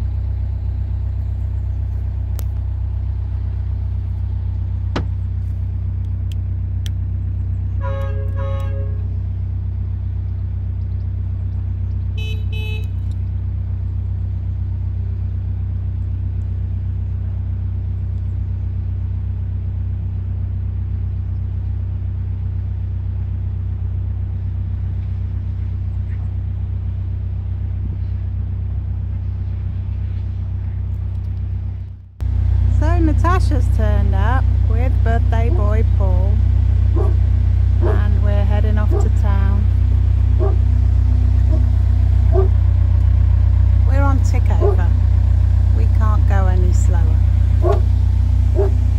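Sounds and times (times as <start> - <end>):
diesel engine rumbling: 0.0 - 48.9
short horn toots: 7.8 - 9.2, 12.2 - 13.0.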